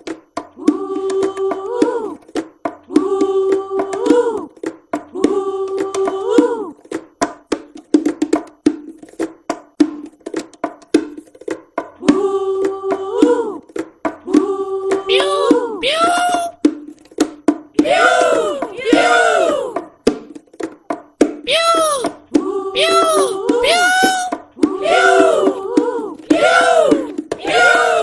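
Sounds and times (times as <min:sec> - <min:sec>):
cartoon voiced or sung notes: 0:15.1 - 0:16.6, 0:21.5 - 0:22.2, 0:22.8 - 0:25.5.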